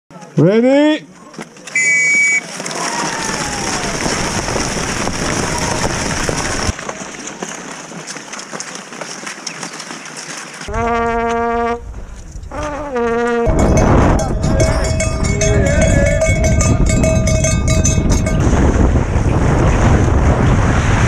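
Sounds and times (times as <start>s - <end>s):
skis sliding on snow: 2.3s - 10.7s
horn blasts: 10.7s - 14.2s.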